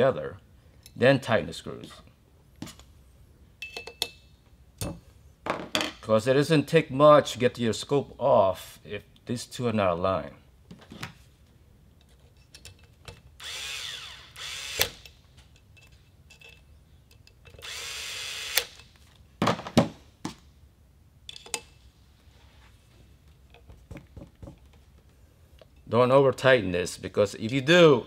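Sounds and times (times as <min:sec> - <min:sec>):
electric screwdriver whirring: 0:13.4 - 0:15.0, 0:17.6 - 0:18.7
tools knocking: 0:23.5 - 0:24.8.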